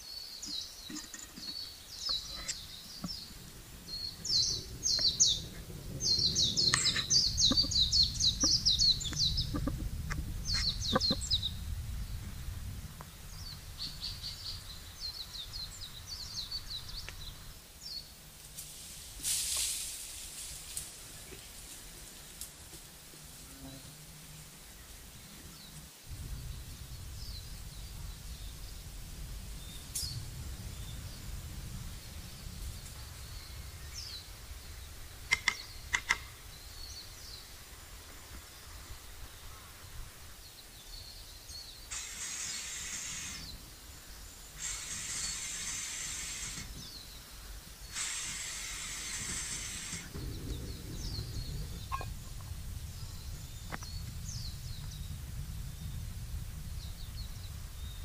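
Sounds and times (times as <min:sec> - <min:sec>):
faint bird chirps: 0:00.0 - 0:12.2, 0:40.4 - 0:56.0
low rumble: 0:01.5 - 0:17.6, 0:22.9 - 0:40.2, 0:50.0 - 0:58.0
hissing bursts: 0:18.6 - 0:22.4, 0:41.8 - 0:52.2
sharp clicks: 0:35.3 - 0:36.4.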